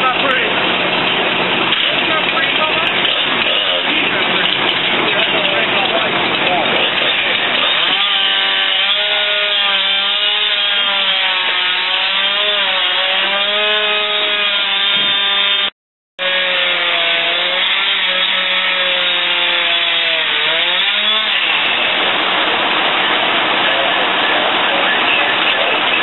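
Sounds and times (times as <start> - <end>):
chainsaw cutting: 1.5 - 22.6.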